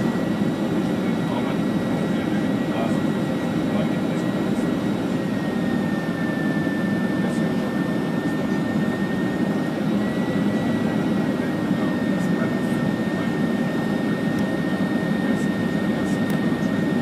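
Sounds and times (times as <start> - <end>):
jet airliner cabin noise: 0.0 - 17.0
thin steady whine: 0.0 - 17.0.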